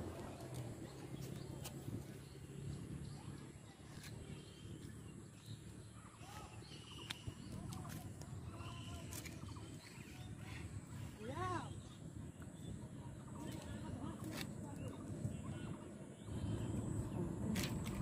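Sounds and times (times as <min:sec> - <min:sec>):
low steady rumble: 0:00.0 - 0:18.0
bird chirps: 0:00.3 - 0:12.8.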